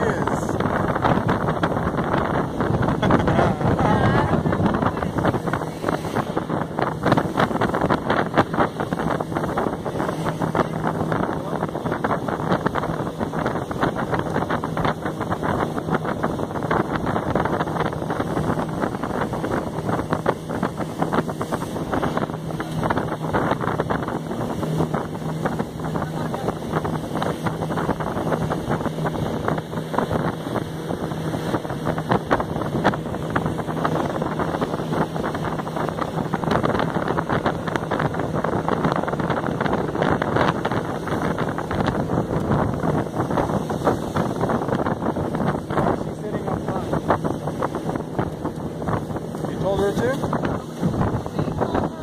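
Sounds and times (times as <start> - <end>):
outboard motor drone: 0.0 - 52.0
water rushing along hull: 0.0 - 52.0
wind buffeting microphone: 0.0 - 52.0.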